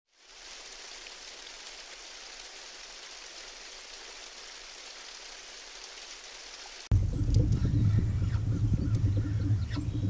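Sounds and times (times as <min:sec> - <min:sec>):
steady water hiss: 0:00.1 - 0:06.9.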